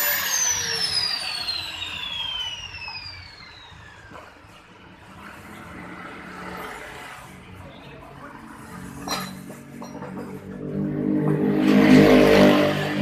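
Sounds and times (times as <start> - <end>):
power tool winding down: 0.0 - 5.6
workshop noise: 0.0 - 13.0.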